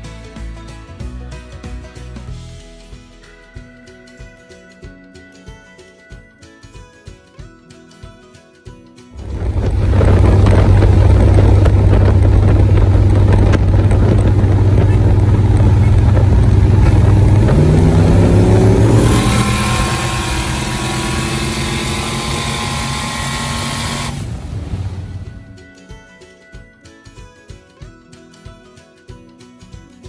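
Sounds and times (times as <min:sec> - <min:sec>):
rush of wind noise: 0:09.2 - 0:25.4
pickup engine and exhaust drone: 0:09.2 - 0:25.5.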